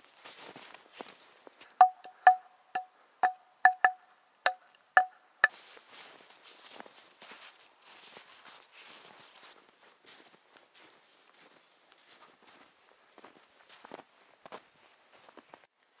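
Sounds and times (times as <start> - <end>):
mallet knocking on wooden board: 1.8 - 5.1.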